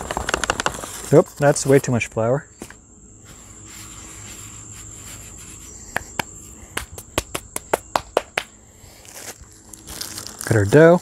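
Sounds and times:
insects trilling: 0.0s - 11.0s
hands brushing flour on board: 3.2s - 6.3s.

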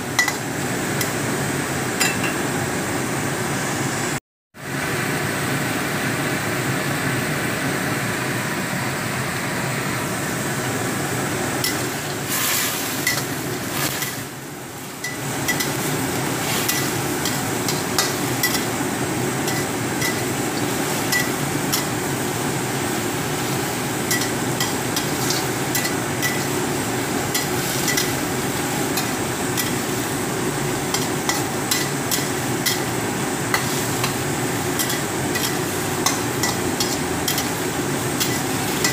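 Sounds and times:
oil sizzling: 10.4s - 38.9s
spatula scraping vegetables: 11.6s - 14.3s, 15.0s - 18.8s, 23.3s - 30.2s, 33.5s - 38.9s
spatula tapping pan: 16.6s - 18.7s, 19.5s - 21.9s, 24.1s - 26.5s, 27.3s - 28.2s, 30.9s - 32.9s, 34.8s - 38.9s.

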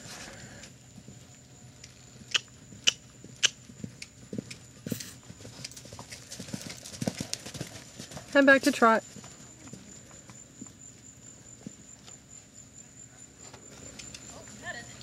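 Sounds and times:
hoof falls on dirt: 0.9s - 12.2s.

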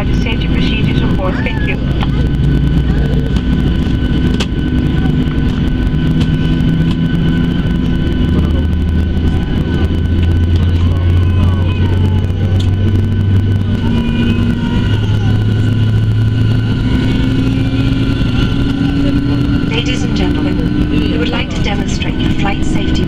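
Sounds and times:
aircraft cabin low rumble: 0.0s - 23.0s
jet engine high whine: 0.0s - 23.0s.

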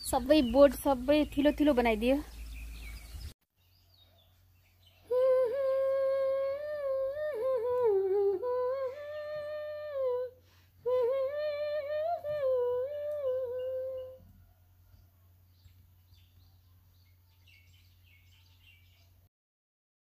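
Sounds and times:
high voice humming: 5.1s - 14.3s.

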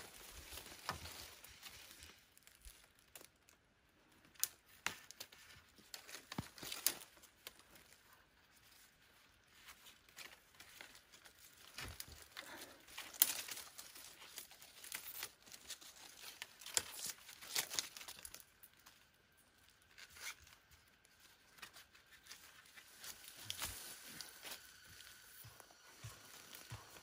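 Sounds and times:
leaves and twigs rustling: 0.0s - 27.0s.

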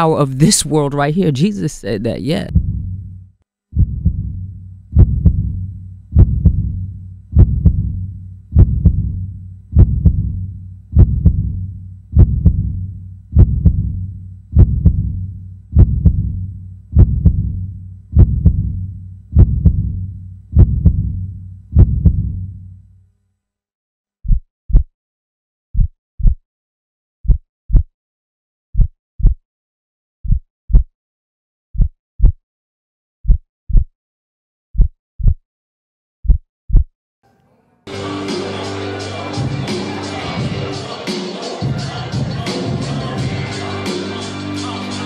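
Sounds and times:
slow heartbeat: 2.5s - 22.6s, 24.2s - 24.9s, 25.8s - 26.4s, 27.2s - 27.9s, 28.8s - 29.4s, 30.2s - 30.9s, 31.8s - 32.4s, 33.2s - 33.9s, 34.8s - 35.4s, 36.2s - 36.9s.

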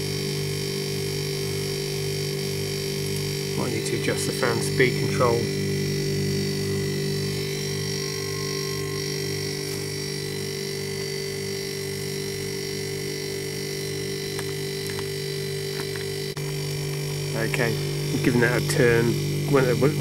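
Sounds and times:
condensing unit humming: 0.0s - 20.0s.

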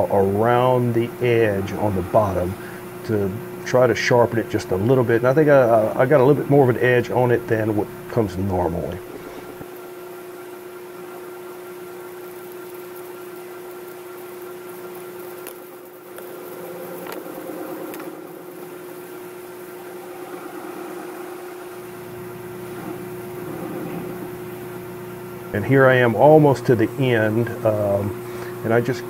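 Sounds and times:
metal lathe humming: 0.0s - 29.0s.

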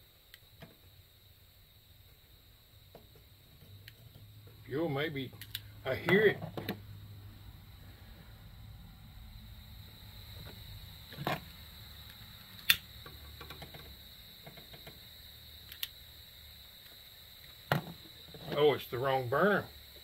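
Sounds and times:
utility lighter clicking: 12.1s - 12.9s, 15.7s - 16.0s.

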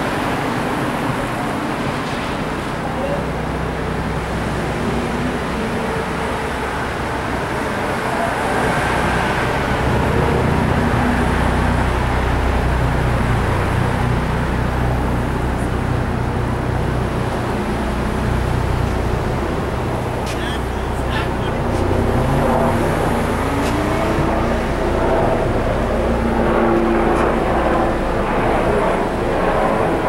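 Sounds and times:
cars driving past: 18.4s - 28.0s.

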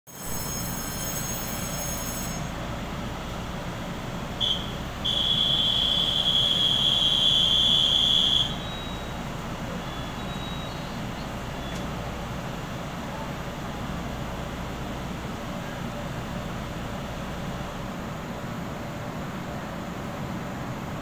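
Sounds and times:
faint high whining tones: 0.1s - 3.5s, 4.4s - 13.9s
electric train hum: 0.1s - 21.0s
high-pitched warning buzzer: 4.4s - 9.1s
short beep: 4.4s - 9.2s, 10.1s - 10.9s.

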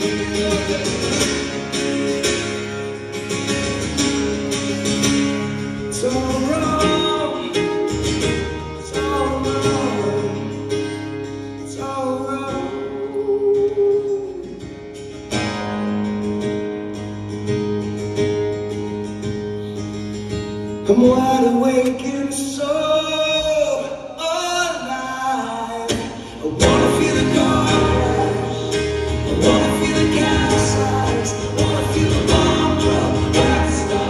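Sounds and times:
man singing into a microphone: 0.0s - 1.7s, 5.8s - 8.0s, 8.7s - 10.7s, 11.6s - 14.7s, 20.9s - 34.0s
acoustic guitar strummed: 0.0s - 34.0s.

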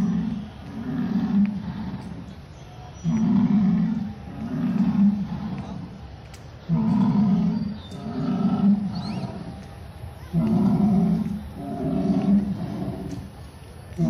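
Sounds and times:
dinosaur roars from loudspeaker: 0.0s - 2.2s, 3.0s - 5.9s, 6.7s - 9.5s, 10.3s - 13.3s.

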